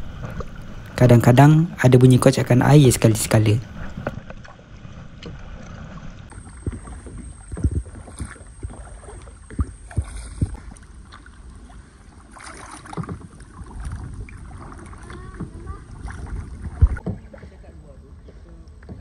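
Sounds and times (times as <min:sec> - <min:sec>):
kayak paddle splashing in water: 0:03.7 - 0:19.0
paddle knocks: 0:12.4 - 0:17.6.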